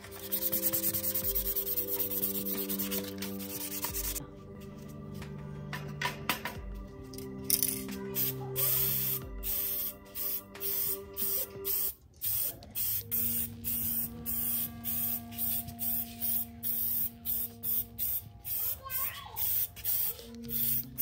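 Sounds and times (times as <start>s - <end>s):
spray paint can hissing: 0.0s - 4.2s, 7.5s - 21.0s.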